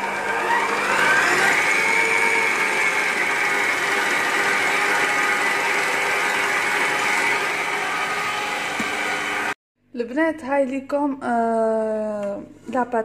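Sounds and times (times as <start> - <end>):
stand mixer motor whine: 0.0 - 9.6.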